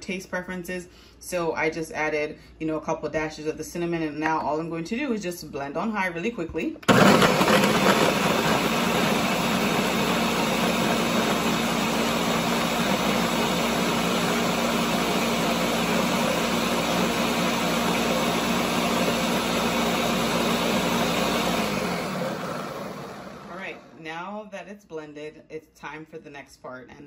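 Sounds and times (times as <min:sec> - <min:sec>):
blender motor whine: 0:06.8 - 0:24.0
liquid rushing in blender: 0:06.8 - 0:24.0.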